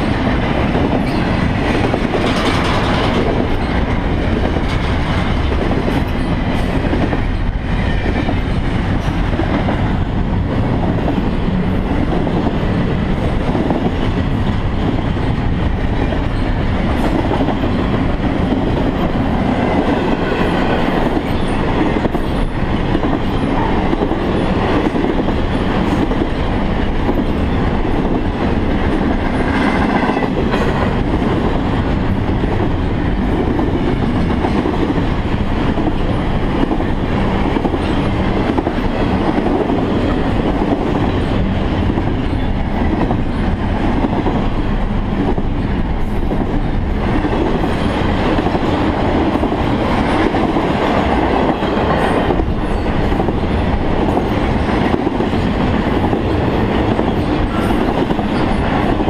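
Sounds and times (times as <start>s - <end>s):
freight train wheels rolling: 0.0s - 59.0s.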